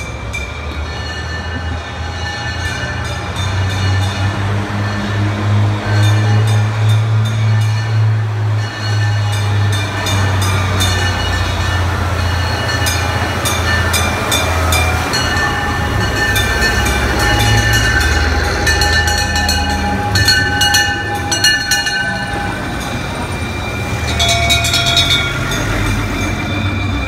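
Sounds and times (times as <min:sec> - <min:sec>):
fire engines rumbling: 0:00.0 - 0:27.0
fire bell ringing rapidly: 0:08.6 - 0:27.0.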